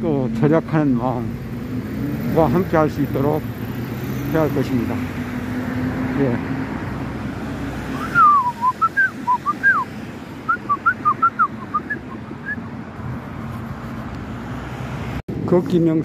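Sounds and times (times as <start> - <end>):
street traffic hum: 0.0 - 16.0
person whistling short notes: 7.9 - 9.9, 10.5 - 12.6.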